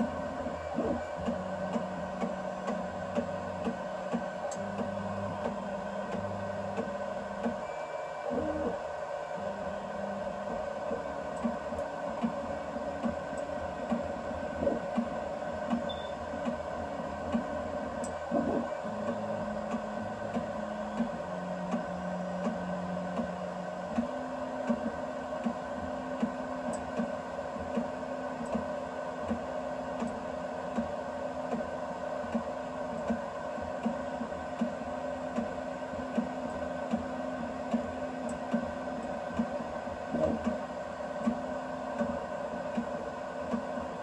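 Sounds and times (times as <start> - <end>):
printer motor tones: 0.0 - 29.4
cooling fans humming: 0.0 - 44.0.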